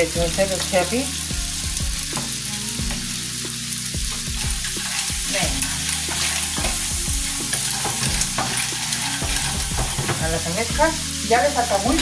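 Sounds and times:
food sizzling in frying pans: 0:00.0 - 0:12.0
wooden spoon stirring and scraping: 0:04.1 - 0:11.1.

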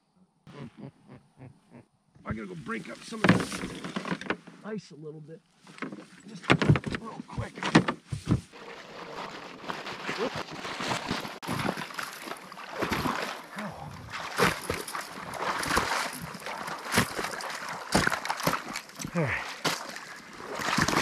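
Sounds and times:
splashing through water: 0:08.5 - 0:21.0.

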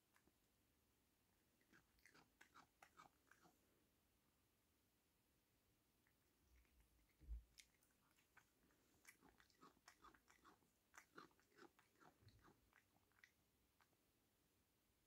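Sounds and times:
cat crunching dry treat: 0:01.6 - 0:03.5, 0:06.6 - 0:13.4.

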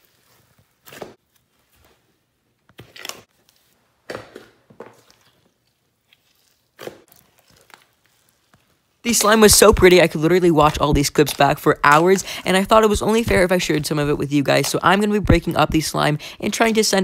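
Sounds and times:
hands squishing slime: 0:04.3 - 0:16.8.

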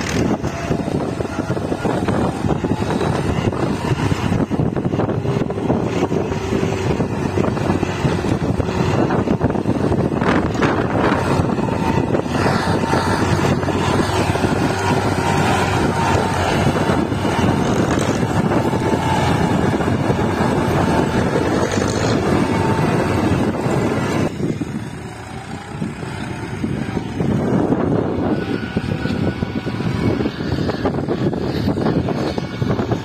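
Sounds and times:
tractor diesel engine under load: 0:00.0 - 0:33.0
wind on microphone: 0:00.0 - 0:33.0.

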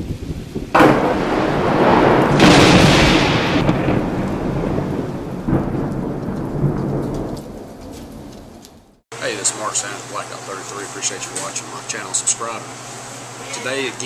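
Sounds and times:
steady rain: 0:00.0 - 0:08.6
thunderclaps: 0:00.0 - 0:09.0.

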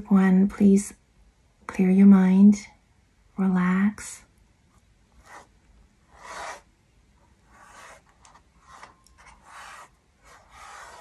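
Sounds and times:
paintbrush strokes scratching: 0:05.2 - 0:06.7, 0:07.4 - 0:11.0.

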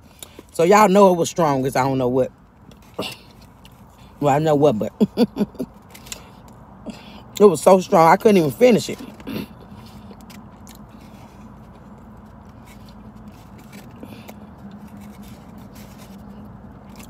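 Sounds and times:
chewing: 0:02.5 - 0:04.2, 0:05.4 - 0:07.4, 0:08.8 - 0:17.0.

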